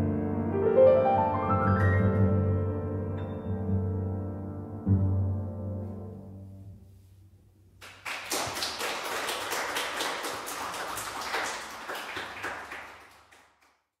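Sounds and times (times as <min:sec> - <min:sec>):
audience applause: 0:07.8 - 0:13.9.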